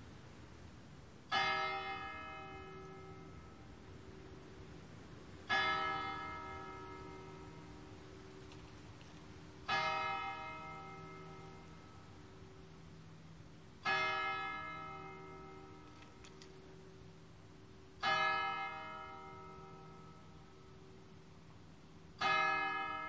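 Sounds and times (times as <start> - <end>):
church bell tolling: 1.3 - 4.6, 5.4 - 8.4, 9.6 - 13.1, 13.8 - 21.4, 22.2 - 23.0.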